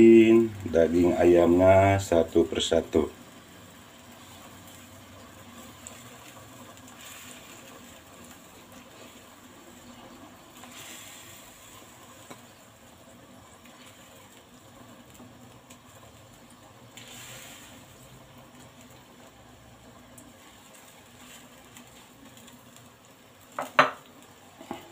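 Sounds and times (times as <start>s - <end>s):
broth simmering in a wok: 0.0s - 24.9s.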